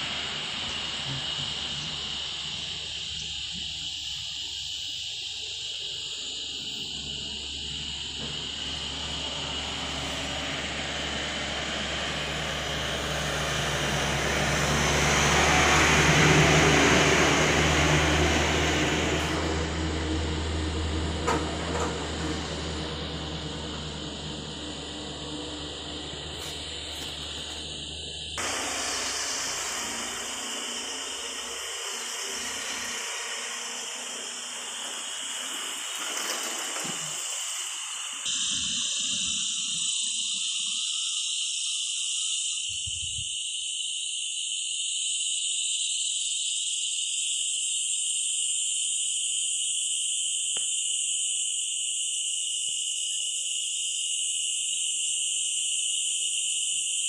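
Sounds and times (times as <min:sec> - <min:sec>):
loud rushing noise: 0:00.0 - 0:03.0, 0:07.2 - 0:39.2
insects chorus: 0:00.0 - 0:57.0.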